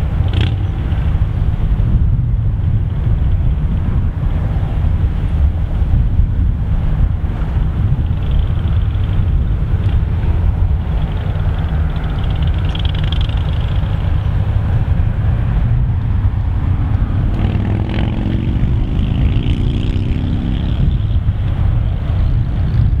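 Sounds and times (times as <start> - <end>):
wind rumbling on microphone: 0.0 - 23.0
vehicle passing: 6.8 - 23.0.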